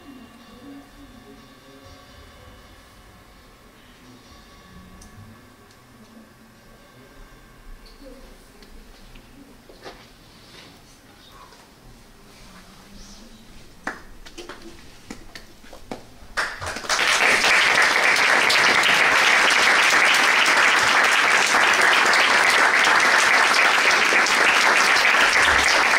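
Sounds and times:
audience applause: 0:16.4 - 0:25.9.

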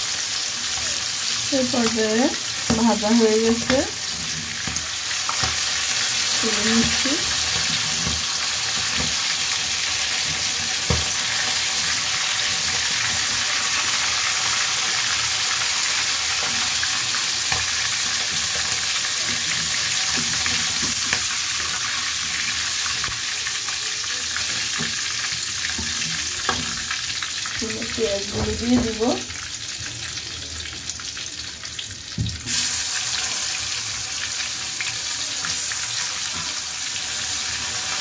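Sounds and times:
deep-frying oil sizzle: 0:00.0 - 0:38.0.

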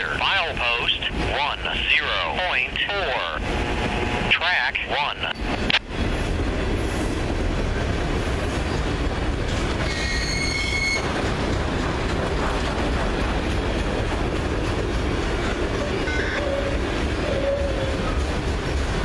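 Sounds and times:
train wheels rumbling on rail: 0:00.0 - 0:19.0
high wheel squeal: 0:09.8 - 0:11.1.

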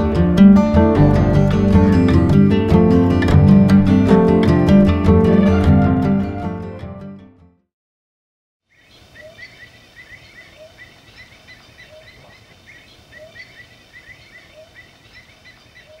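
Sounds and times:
birds chirping: 0:08.7 - 0:16.0.

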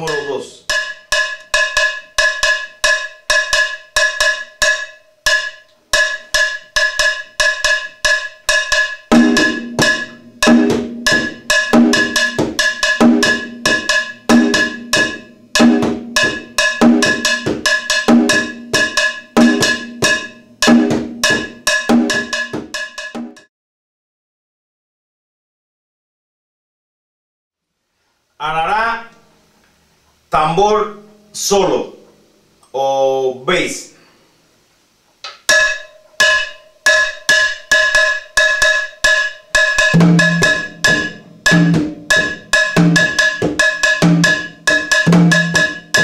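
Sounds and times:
conga drum played: 0:00.0 - 0:23.5, 0:35.4 - 0:46.0.

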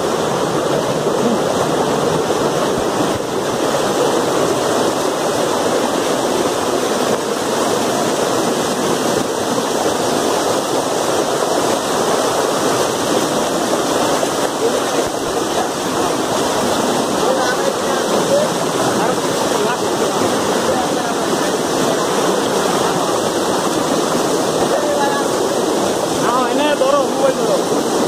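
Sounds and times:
waterfall rushing over rock: 0:00.0 - 0:28.0.

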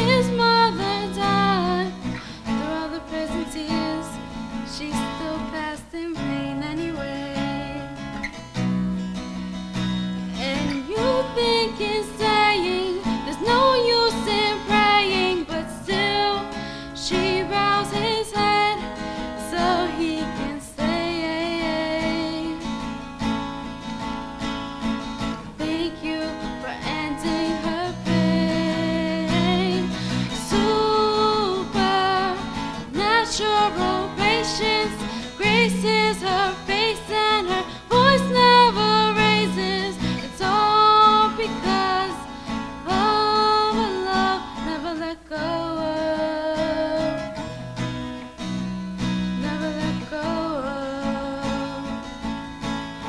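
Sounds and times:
woman singing: 0:00.0 - 0:08.2, 0:10.3 - 0:23.0, 0:25.4 - 0:47.7, 0:49.3 - 0:52.3
acoustic guitar strumming: 0:00.0 - 0:53.0.

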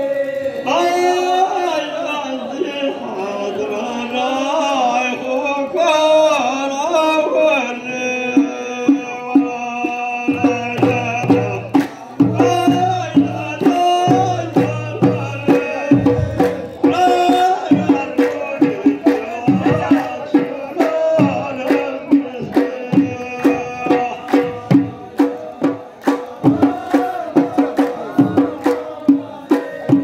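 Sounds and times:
hand drum beats: 0:08.3 - 0:30.0
deep drum thumps: 0:10.3 - 0:29.3.

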